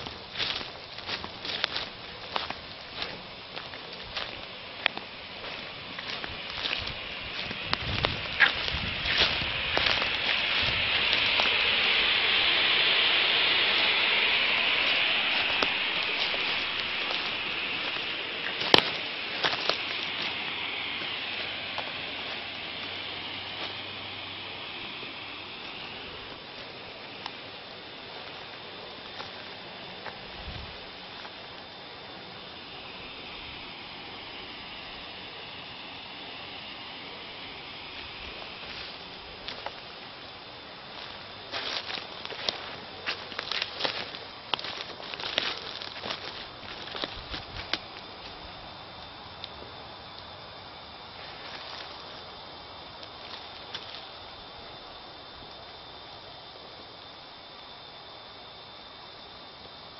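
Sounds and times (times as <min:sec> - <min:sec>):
crackles: 0:00.0 - 0:48.4
smoke grenade hissing: 0:00.0 - 0:50.0.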